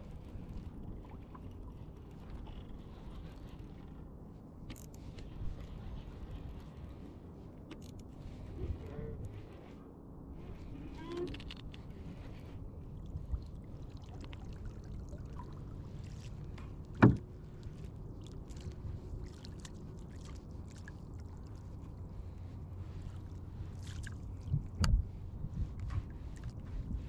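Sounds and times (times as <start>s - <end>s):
water splashing around kayak: 12.0s - 27.0s
knocks on kayak: 17.0s - 17.2s.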